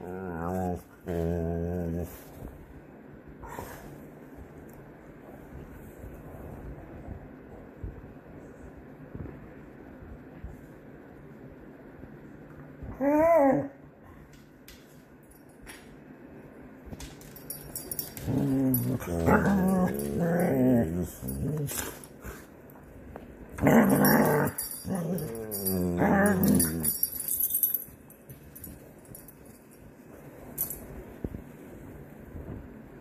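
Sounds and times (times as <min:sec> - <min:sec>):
dogs play-growling: 0:00.0 - 0:02.4, 0:17.9 - 0:22.6, 0:23.6 - 0:27.7
dog whining: 0:12.9 - 0:13.8.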